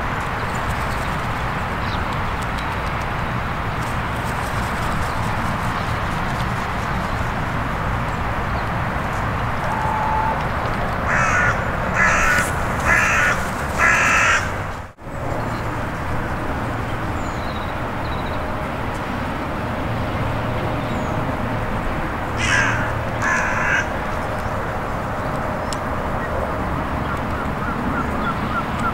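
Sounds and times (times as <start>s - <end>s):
crow cawing: 11.1s - 14.7s, 22.4s - 24.0s.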